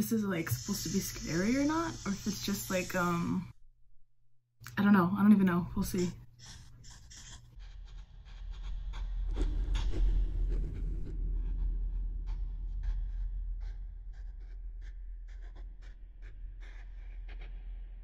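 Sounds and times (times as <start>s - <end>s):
steady low hum: 0.0s - 4.0s
pencil scratching on paper: 0.1s - 3.4s, 5.8s - 17.6s.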